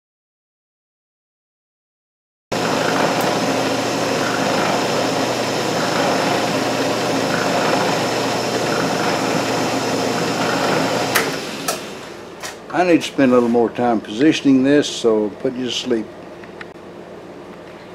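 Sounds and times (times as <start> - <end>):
milling machine running: 2.5 - 12.4.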